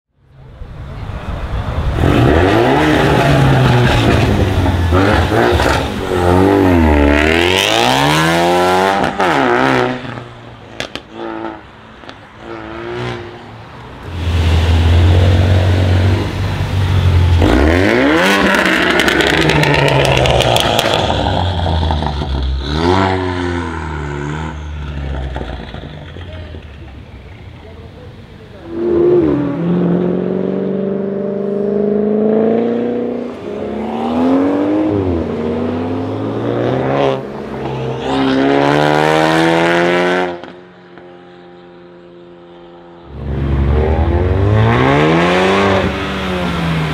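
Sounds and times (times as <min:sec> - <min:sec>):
car engine revving: 0:01.4 - 0:27.2, 0:28.5 - 0:41.7, 0:42.6 - 0:46.9
exhaust cracks: 0:17.4 - 0:22.7
car accelerating through gears: 0:43.1 - 0:46.9.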